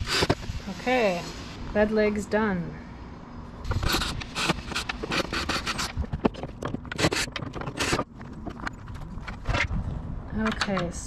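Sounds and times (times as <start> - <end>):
wood scraping and knocking on wood: 3.7 - 9.8.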